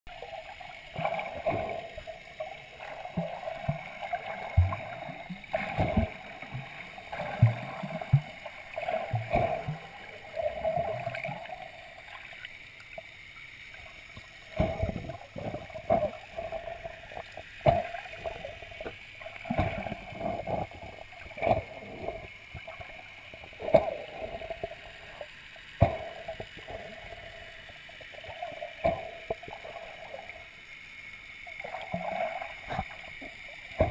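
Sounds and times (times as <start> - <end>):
muffled underwater sloshing: 0.1 - 30.5, 31.5 - 33.9.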